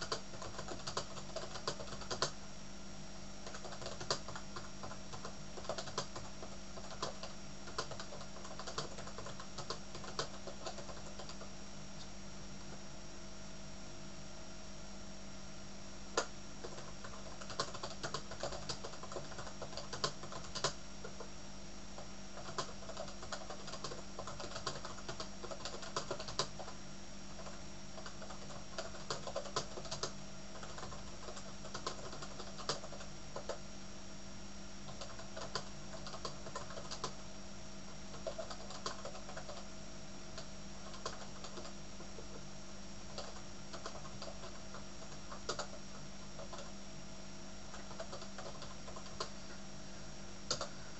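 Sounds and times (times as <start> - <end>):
keyboard typing clicks: 0.0 - 2.4, 3.4 - 11.4, 16.2 - 21.2, 22.4 - 26.7, 27.4 - 33.6, 34.9 - 37.2, 38.1 - 39.6, 40.4 - 41.7, 43.1 - 45.8, 47.7 - 49.4, 50.5 - 50.7
steady background hum: 0.0 - 50.9.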